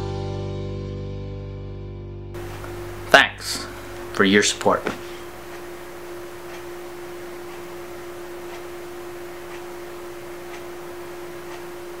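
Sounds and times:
steady hum: 2.4s - 12.0s
clock ticking: 3.9s - 12.0s.

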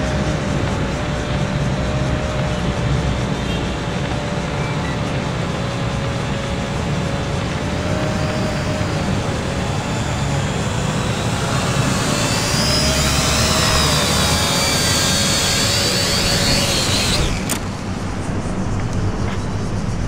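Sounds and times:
toy drone motors whining: 0.0s - 19.0s
steady low rumble: 14.9s - 20.0s.

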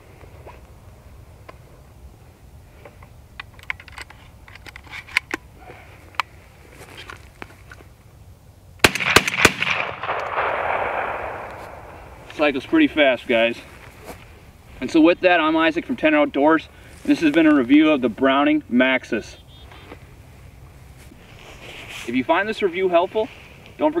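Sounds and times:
shotgun handling clicks: 3.0s - 5.5s, 8.8s - 11.6s
shotgun shots with echo: 8.8s - 12.0s.

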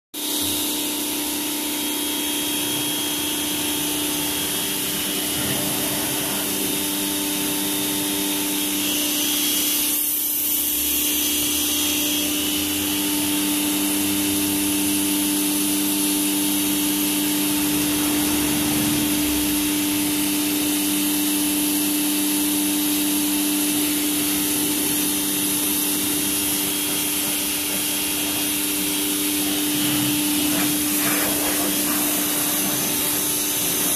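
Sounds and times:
pressure washer humming: 0.2s - 33.9s
water jet hissing: 2.3s - 14.7s, 23.3s - 33.9s.

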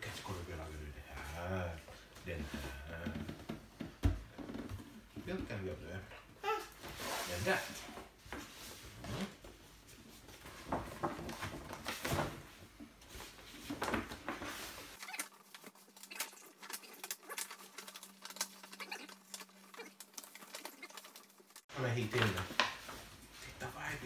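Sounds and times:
paper bag rustling and crinkling: 10.4s - 23.6s.

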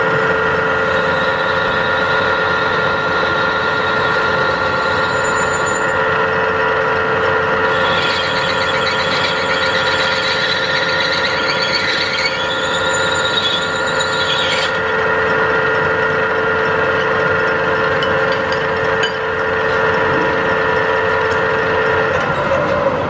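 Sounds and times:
high-pitched squeal: 0.9s - 6.0s, 7.6s - 15.1s
cutting tool ringing on bronze bell: 3.9s - 6.0s, 7.6s - 10.5s, 12.4s - 14.8s, 18.0s - 20.0s.

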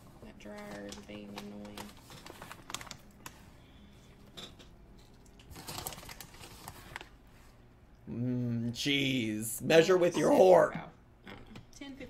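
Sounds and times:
crackles and taps: 0.4s - 3.4s
plastic bag crinkling: 0.6s - 3.4s, 5.3s - 7.2s.

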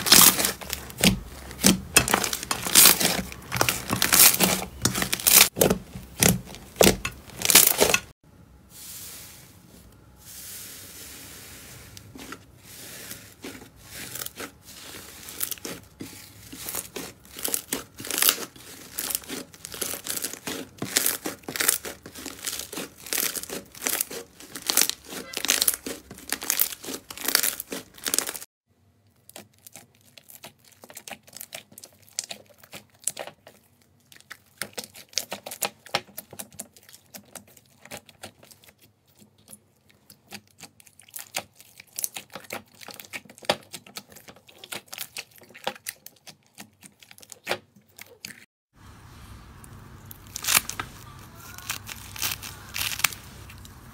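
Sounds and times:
slime crackling and popping: 0.0s - 8.1s, 13.9s - 28.4s, 40.2s - 48.2s, 49.7s - 53.9s.

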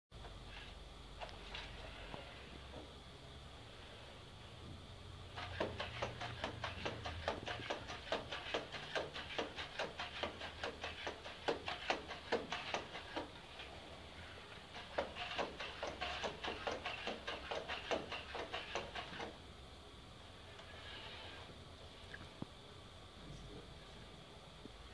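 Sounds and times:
robot motors clicking and tapping: 5.4s - 13.6s, 14.7s - 19.4s.

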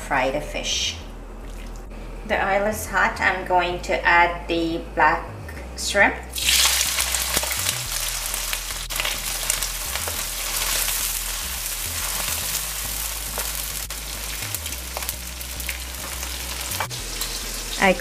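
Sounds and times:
shrimps sizzling in hot oil: 6.3s - 18.0s.

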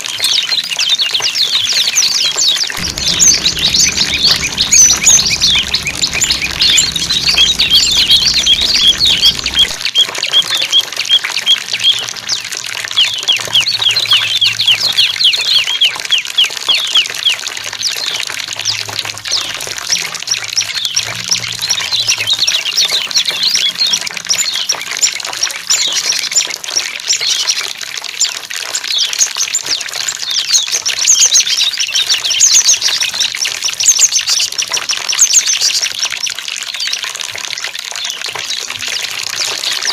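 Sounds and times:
running water trickling: 2.7s - 10.0s, 11.0s - 39.9s
songbirds chirping and trilling: 2.8s - 9.8s.

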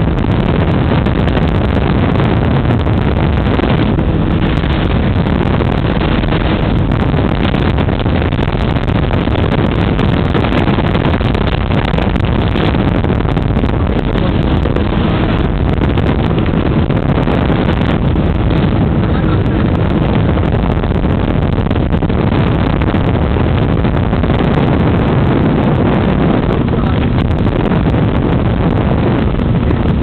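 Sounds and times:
engine and propeller running: 0.0s - 30.0s
wind rush on microphone: 0.0s - 30.0s.

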